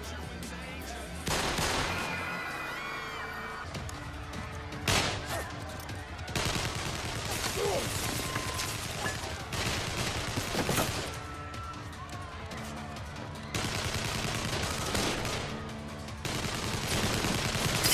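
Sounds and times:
background music: 0.0 - 17.9
gunshots: 1.2 - 2.3, 4.8 - 5.5, 6.3 - 11.2, 13.5 - 17.9.

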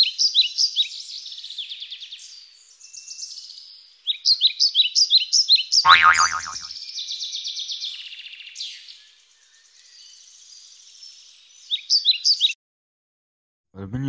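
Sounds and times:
small birds chirping: 0.0 - 12.6
loud falling pitch sweep: 5.9 - 6.7.

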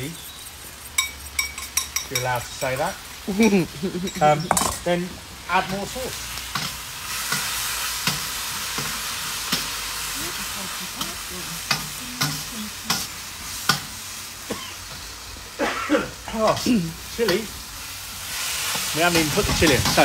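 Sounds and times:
stir-fry sizzling in a wok: 0.0 - 20.0
metal utensil clinking on wok: 1.0 - 4.9.

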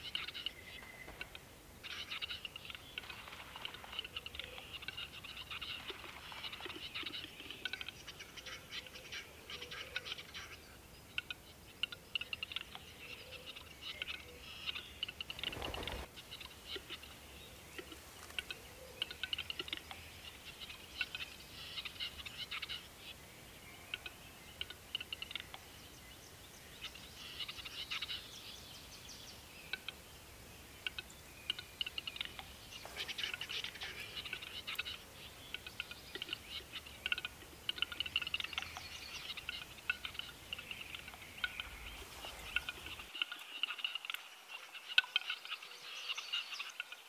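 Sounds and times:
bird display song clicks and scraping: 0.1 - 8.0, 30.8 - 45.5.

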